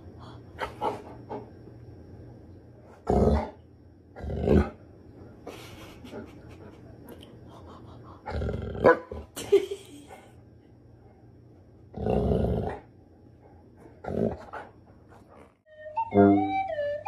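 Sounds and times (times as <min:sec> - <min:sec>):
dog grumbling with low growls: 0:11.9 - 0:12.9, 0:14.0 - 0:14.6.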